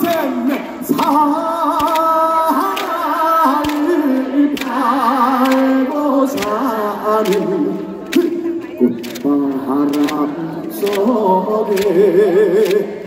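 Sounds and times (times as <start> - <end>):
man singing into a microphone: 0.0 - 13.0.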